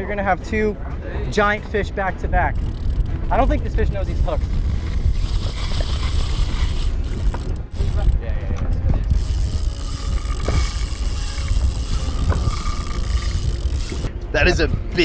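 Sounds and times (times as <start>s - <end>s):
wind and sea rumble: 0.0s - 15.0s
fishing reel clicking: 2.4s - 8.3s, 9.0s - 14.1s.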